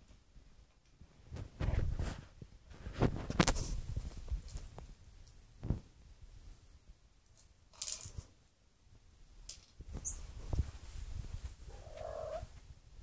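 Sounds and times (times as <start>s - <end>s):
treats rattling in plastic ball: 7.3s - 8.3s.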